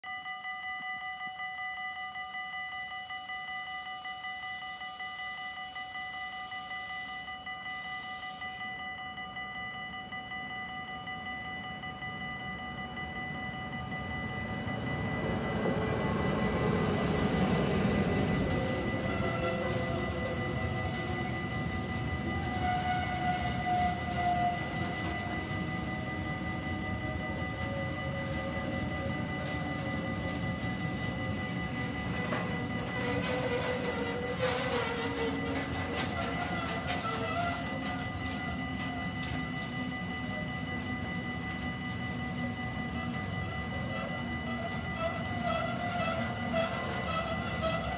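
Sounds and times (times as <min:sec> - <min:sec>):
faint steady high tone: 0:00.0 - 0:47.9
level crossing warning bell ringing: 0:00.0 - 0:47.9
brief whine: 0:04.2 - 0:09.0
freight train wheels rumbling on rails: 0:08.2 - 0:47.9.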